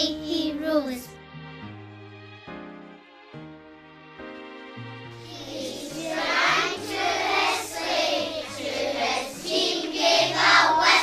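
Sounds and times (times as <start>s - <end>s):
young children singing: 5.2s - 11.0s.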